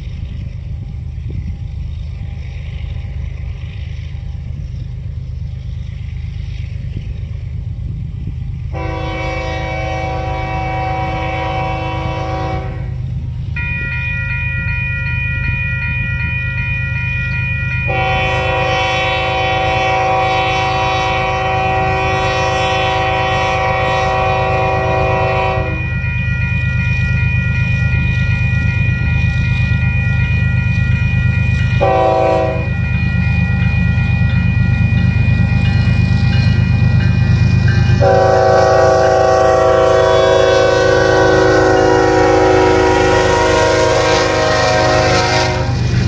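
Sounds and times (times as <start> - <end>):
train rumble: 0.0 - 46.0
diesel locomotive horn blasts: 8.7 - 13.1, 17.9 - 26.3, 31.8 - 32.9, 35.2 - 46.0.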